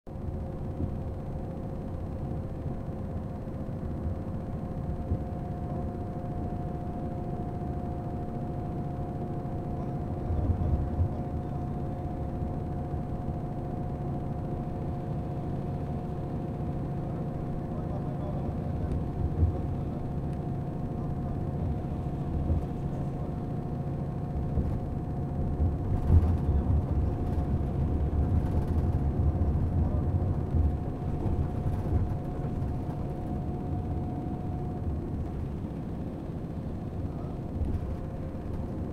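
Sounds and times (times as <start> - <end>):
faint steady whine: 0.1 - 38.9
road and engine rumble: 8.8 - 38.9.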